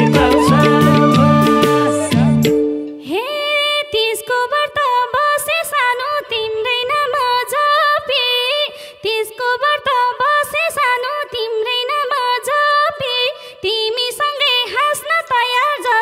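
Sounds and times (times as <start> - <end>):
hand drum strokes: 0.0 - 2.9
ornamented lead melody: 0.0 - 3.0.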